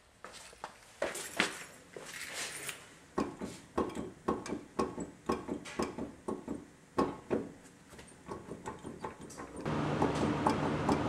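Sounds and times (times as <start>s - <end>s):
wheel hub clunking: 8.2s - 11.0s.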